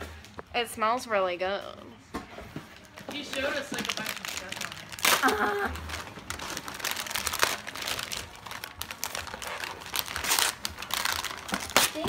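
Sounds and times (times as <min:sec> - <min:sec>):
paper crinkling and rustling: 0:02.7 - 0:12.0.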